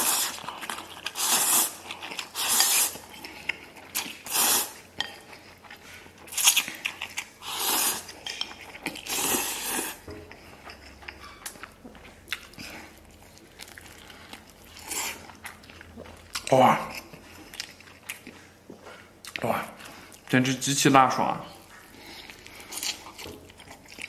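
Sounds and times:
person slurping noodles: 0:00.0 - 0:00.4, 0:01.1 - 0:03.0, 0:04.2 - 0:04.8, 0:07.4 - 0:08.1, 0:09.1 - 0:10.0
chewing: 0:00.0 - 0:20.3, 0:21.6 - 0:24.0.

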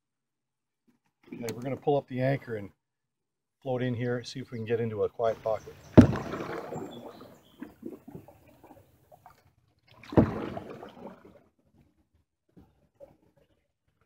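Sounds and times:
paddle stroking through water: 0:05.2 - 0:11.4
sharp knock and splash: 0:05.9 - 0:08.3, 0:09.9 - 0:11.3.

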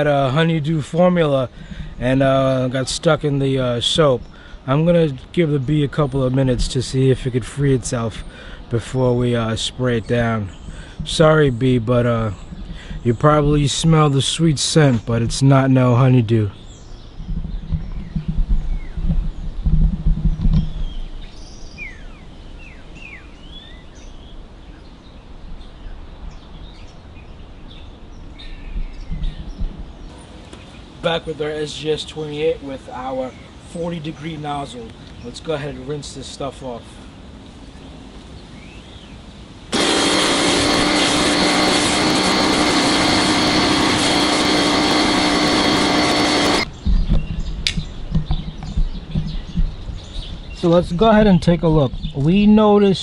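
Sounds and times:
steady outdoor background: 0:00.0 - 0:53.0
small birds chirping: 0:00.8 - 0:53.0
pressure washer motor hum: 0:39.7 - 0:46.7.

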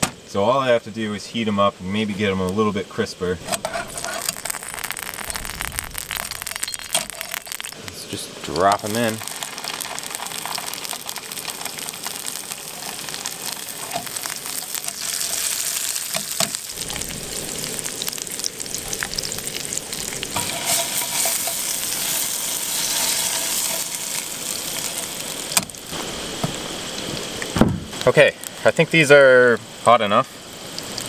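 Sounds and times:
meat sizzling in hot oil: 0:02.5 - 0:31.0.

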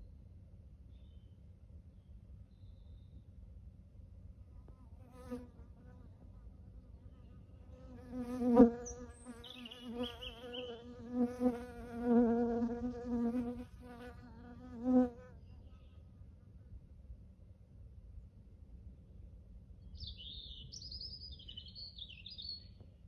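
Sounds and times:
flying insect buzzing: 0:07.8 - 0:15.3.

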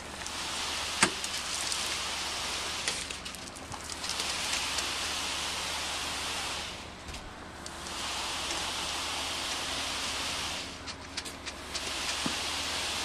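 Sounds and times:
wet concrete pouring hiss: 0:00.0 - 0:13.0.

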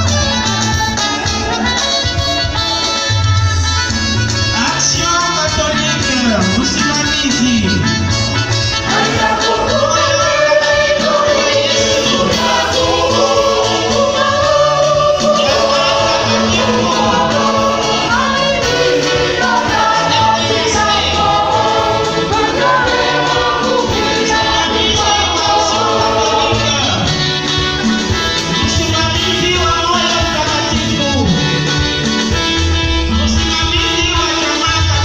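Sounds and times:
choir singing: 0:08.8 - 0:28.7.

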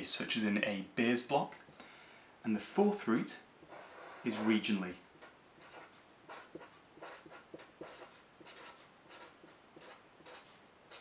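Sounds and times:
marker pen writing on paper: 0:03.1 - 0:11.0.

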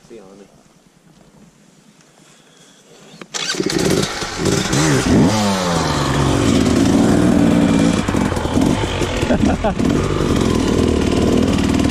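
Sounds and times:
dirt bike engine revving and running: 0:03.4 - 0:11.9.

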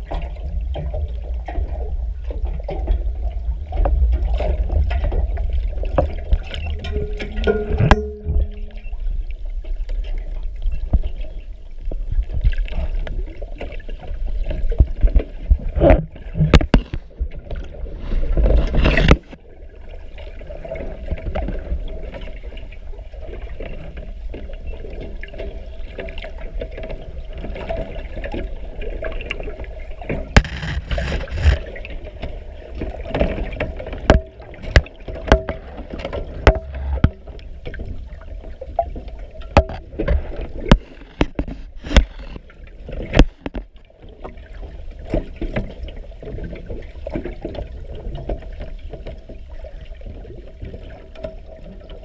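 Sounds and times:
constant low hum: 0:00.0 - 0:24.5, 0:28.0 - 0:50.3
underwater rushing and bubbling water: 0:00.0 - 0:52.0
sharp clicks and knocks: 0:05.9 - 0:08.8, 0:14.8 - 0:17.1, 0:30.4 - 0:31.6, 0:33.1 - 0:37.4, 0:39.5 - 0:43.8.

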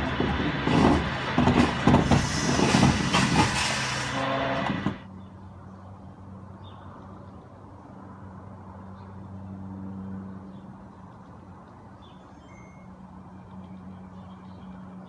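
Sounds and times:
truck engine running loud: 0:00.0 - 0:05.1.

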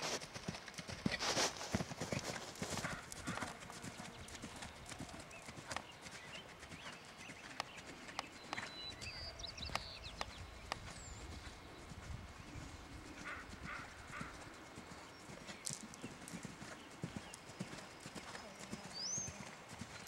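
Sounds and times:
horse hoofbeats on sand: 0:00.0 - 0:08.7.

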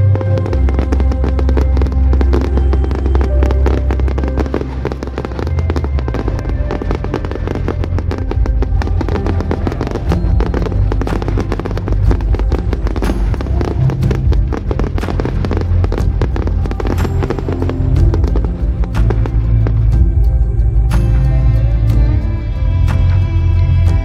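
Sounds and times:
fireworks bursting and crackling: 0:00.0 - 0:21.7
loud music with bass: 0:00.0 - 0:24.0.

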